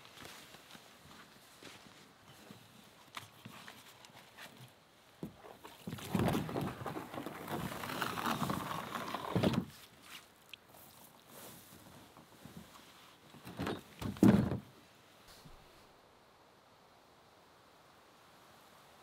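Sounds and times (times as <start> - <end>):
canoe scraping over grass: 5.3 - 10.2, 10.8 - 14.7
canoe knocks: 13.5 - 14.7.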